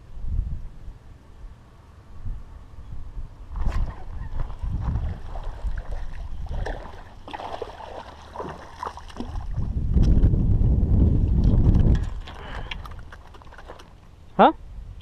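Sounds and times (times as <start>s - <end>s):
wind rumbling on microphone: 0.0s - 15.0s
fish splashing at water surface: 3.6s - 9.6s.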